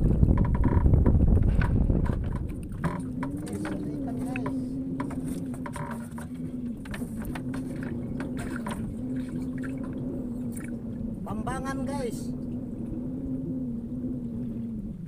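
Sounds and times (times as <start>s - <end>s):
boat engine idling: 0.0s - 14.8s.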